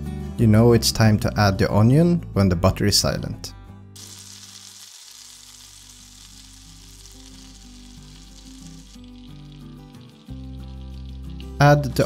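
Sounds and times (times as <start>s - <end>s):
soft background music: 0.0s - 12.0s
butter sizzling in a frying pan: 4.0s - 11.6s.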